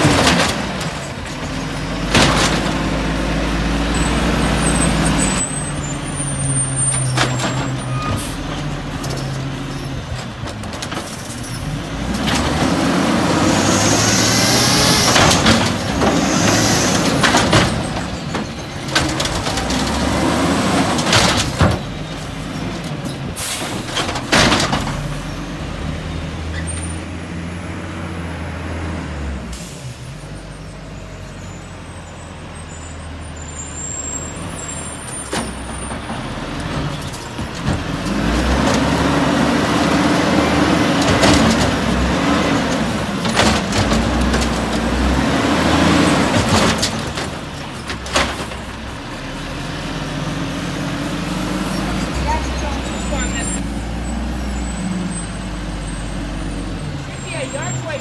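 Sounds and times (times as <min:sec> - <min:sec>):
garbage truck engine revving: 0:00.0 - 0:31.7, 0:32.5 - 0:58.0.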